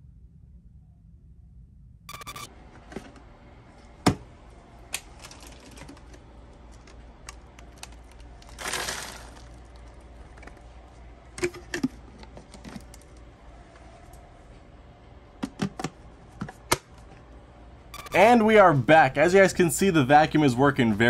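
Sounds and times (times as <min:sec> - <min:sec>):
debris rustling into trash can: 0:07.8 - 0:09.9.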